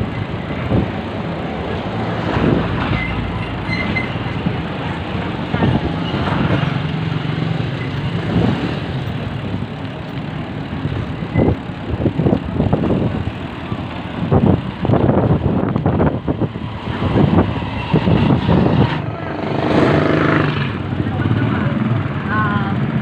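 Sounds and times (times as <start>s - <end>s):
wind buffeting the microphone: 0.0s - 3.0s, 10.9s - 21.2s
motorcycle running at low speed: 0.0s - 3.6s, 4.2s - 23.0s.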